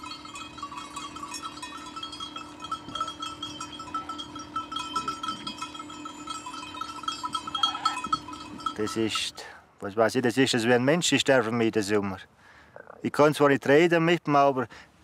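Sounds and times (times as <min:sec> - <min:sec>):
sheep bells clinking: 0:00.0 - 0:11.2.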